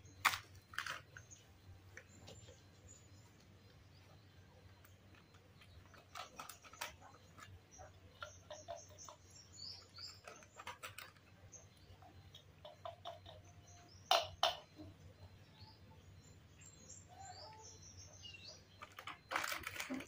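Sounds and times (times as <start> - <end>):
foil packet crinkling: 0.2 - 1.0, 18.9 - 20.0.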